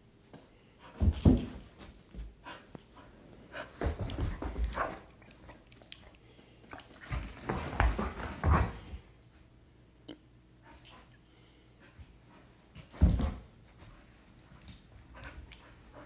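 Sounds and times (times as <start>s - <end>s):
scuffling and paw thumps: 3.6s - 5.1s, 7.0s - 9.0s, 12.4s - 16.0s.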